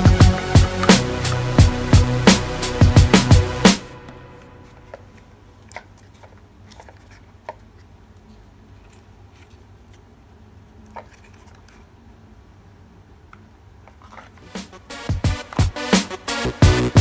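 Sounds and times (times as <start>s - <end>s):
background music with sharp beat: 0.0s - 4.8s, 14.4s - 17.0s.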